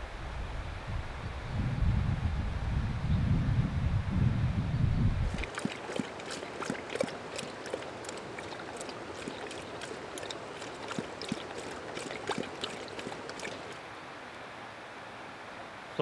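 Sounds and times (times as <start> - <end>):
dog lapping water: 5.3 - 13.8.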